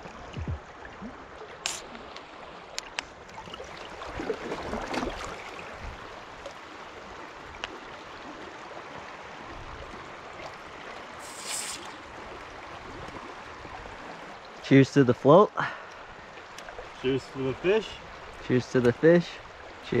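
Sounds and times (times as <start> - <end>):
river water rushing: 0.8 - 14.7
drink can opening hiss: 1.6 - 1.8, 11.2 - 12.0.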